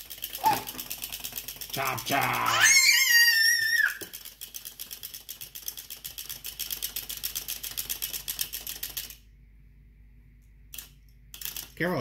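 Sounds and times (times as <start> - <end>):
clockwork toy clicking: 0.0 - 9.2, 10.7 - 11.9.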